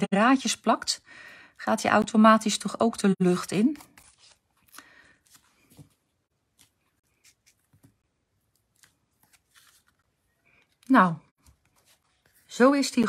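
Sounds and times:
paper and card rustling: 3.3s - 13.0s.

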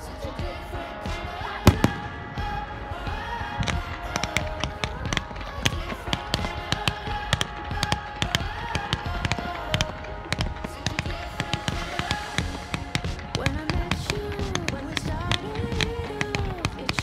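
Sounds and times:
music playing: 0.0s - 17.0s
fireworks bangs and crackles: 1.1s - 17.0s.

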